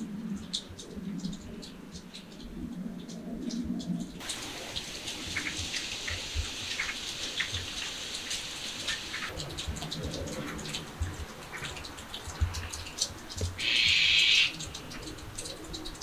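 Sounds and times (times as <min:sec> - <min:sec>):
light rain patter: 0:00.0 - 0:16.0
drips ticking: 0:04.2 - 0:16.0.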